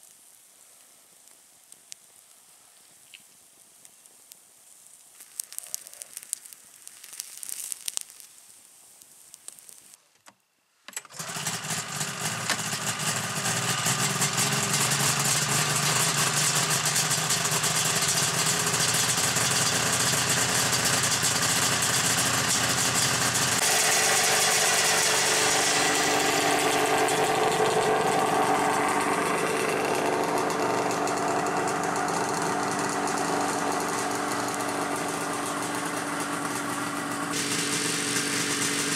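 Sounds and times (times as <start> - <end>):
campfire crackling: 0.0 - 10.1, 11.2 - 38.9
snowmobile engine running: 11.2 - 38.9.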